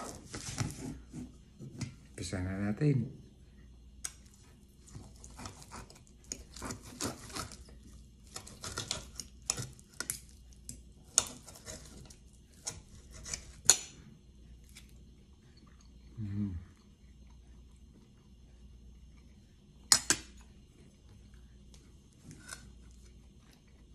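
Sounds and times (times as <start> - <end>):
knife scraping a plate: 11.2 - 13.8.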